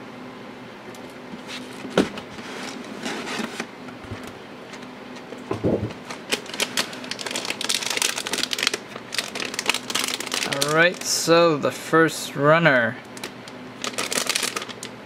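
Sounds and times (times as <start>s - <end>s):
plastic bags crinkling: 6.0s - 11.3s, 13.2s - 15.0s.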